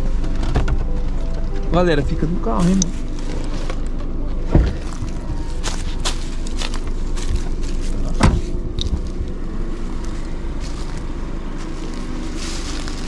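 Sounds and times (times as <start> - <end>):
car engine idling: 0.0 - 13.0
car door shutting: 2.7 - 5.4, 8.1 - 9.3.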